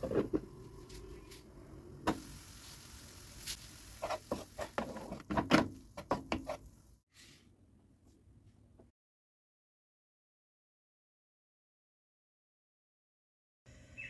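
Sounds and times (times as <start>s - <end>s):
food sizzling in a pan: 2.0s - 5.8s
spatula tapping and scraping pan: 4.0s - 6.7s.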